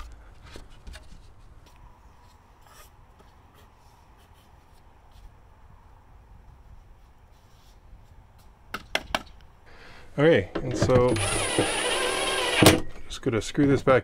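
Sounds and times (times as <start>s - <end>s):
faint rubbing of frame: 0.0s - 5.5s, 6.4s - 8.5s.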